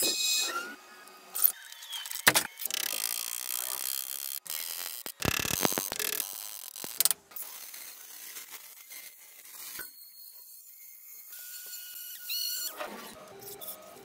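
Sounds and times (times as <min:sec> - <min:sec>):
abrasive disc grinding: 0:01.6 - 0:07.0.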